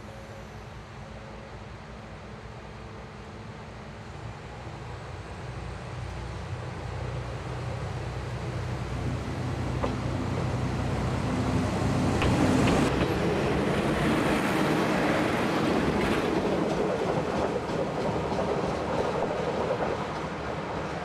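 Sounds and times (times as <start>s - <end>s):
wheels clicking over rail joints: 12.2s - 13.3s.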